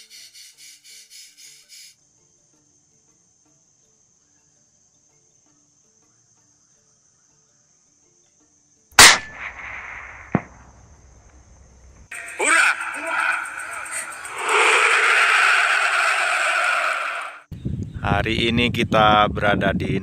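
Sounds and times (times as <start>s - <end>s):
faint high insect buzz: 0.0s - 16.8s
rifle shot: 9.0s - 11.0s.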